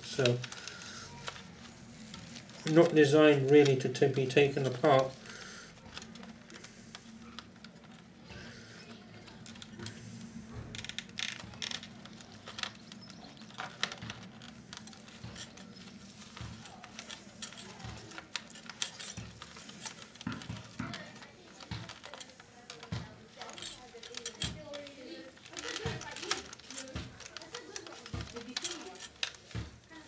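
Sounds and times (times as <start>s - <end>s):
fingers clicking and tapping plastic: 10.6s - 30.0s.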